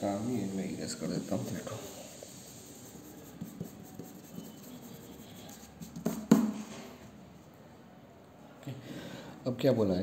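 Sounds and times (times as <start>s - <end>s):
eraser rubbing on paper: 0.2s - 6.3s.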